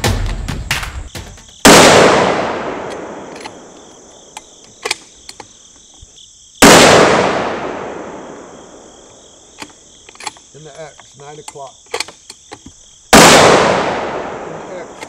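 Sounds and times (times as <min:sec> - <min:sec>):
rifle shots echoing: 0:01.6 - 0:05.0, 0:06.6 - 0:09.8, 0:13.1 - 0:15.0.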